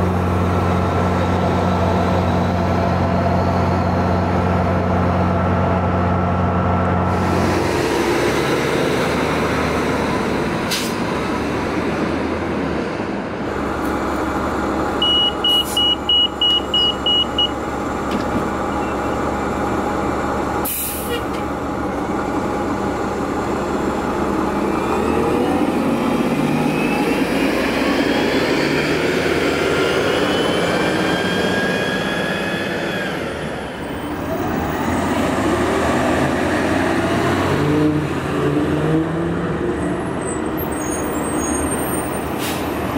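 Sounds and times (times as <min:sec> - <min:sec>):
bus accelerating whine: 0:00.0 - 0:42.9
bus engine drone: 0:00.0 - 0:42.9.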